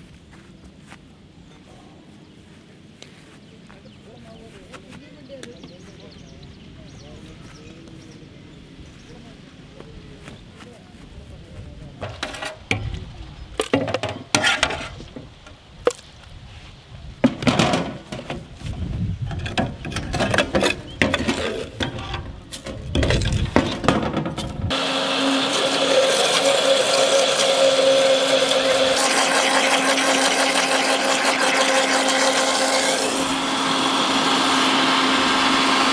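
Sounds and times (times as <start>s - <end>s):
electric blender whirring: 24.7s - 35.9s.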